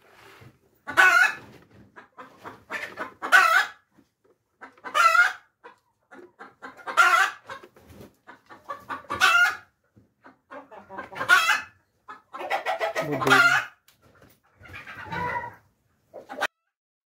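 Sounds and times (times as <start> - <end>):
chicken clucking: 0.2 - 16.7
chicken squawking: 0.8 - 1.4, 2.0 - 3.8, 4.6 - 7.6, 8.3 - 13.8, 14.6 - 15.6.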